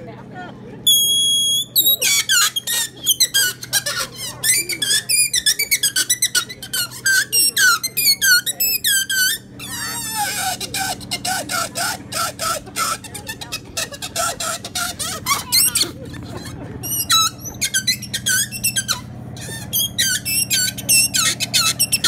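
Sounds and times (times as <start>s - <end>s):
rubber balloon squeaking: 0.9s - 22.0s.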